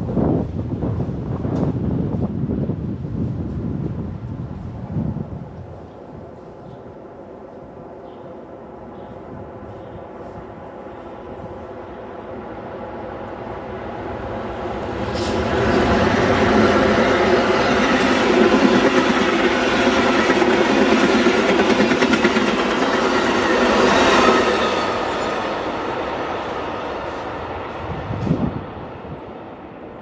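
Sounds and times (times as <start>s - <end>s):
diesel locomotive engine: 15.6s - 29.4s
train cars rolling on rails: 23.9s - 29.4s.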